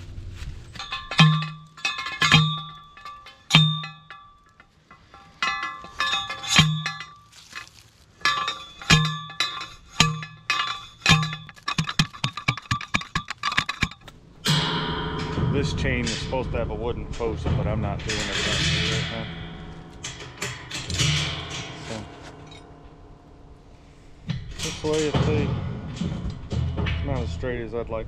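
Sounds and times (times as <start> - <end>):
light metal clinks: 0.8 - 14.1
post driver clanging on steel post: 0.8 - 23.5, 24.2 - 27.7.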